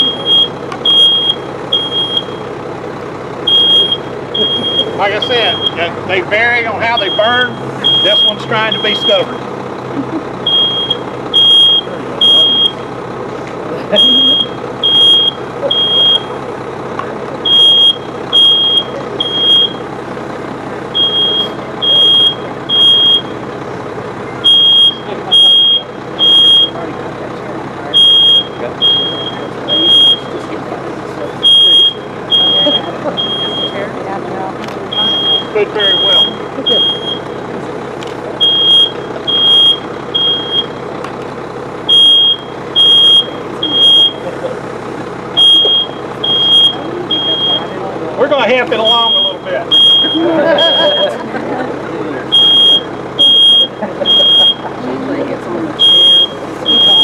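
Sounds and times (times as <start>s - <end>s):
smoke alarm beeping: 0.0s - 2.5s, 3.5s - 5.9s, 6.8s - 9.4s, 10.5s - 12.8s, 13.9s - 16.4s, 17.4s - 19.8s, 20.9s - 23.4s, 24.4s - 26.8s, 27.9s - 30.4s, 31.4s - 33.9s, 34.9s - 37.4s, 38.4s - 40.8s, 41.9s - 44.3s, 45.4s - 47.8s, 48.8s - 51.2s, 52.3s - 54.7s, 55.8s - 57.0s.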